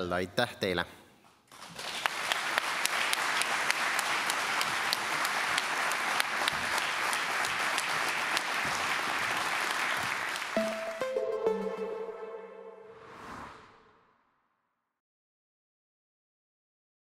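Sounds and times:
audience applauding: 1.5 - 12.0
music with held tones: 10.6 - 13.0.

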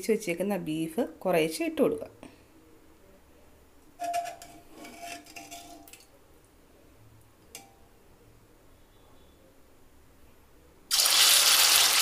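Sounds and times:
metal utensils clinking: 4.0 - 6.1.

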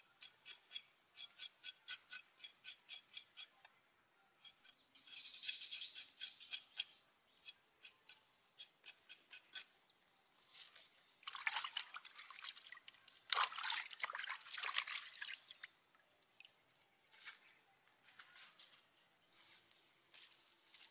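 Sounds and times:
water splashing and sloshing: 11.2 - 16.8.

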